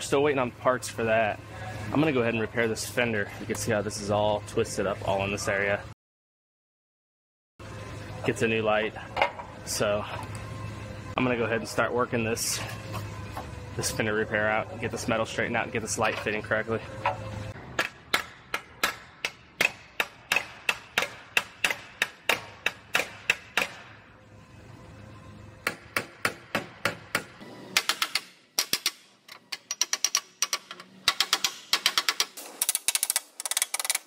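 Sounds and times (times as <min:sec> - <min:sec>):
hammer striking metal: 0:17.0 - 0:23.9.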